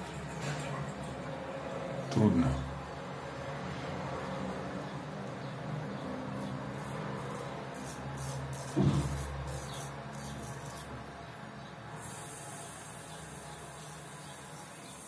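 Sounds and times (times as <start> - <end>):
straight razor scraping stubble: 6.3 - 11.0.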